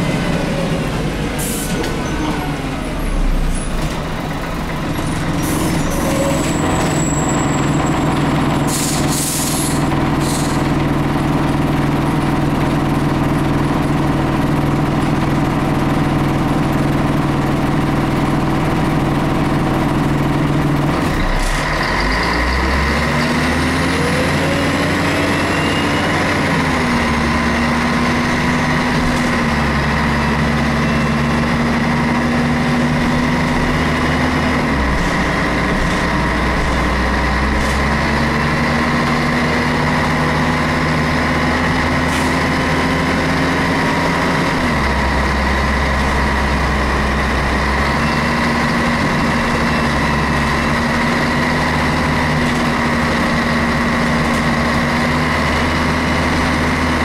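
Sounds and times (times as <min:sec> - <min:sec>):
bus diesel engine running: 0:00.0 - 0:57.0
short air hisses: 0:08.7 - 0:10.6.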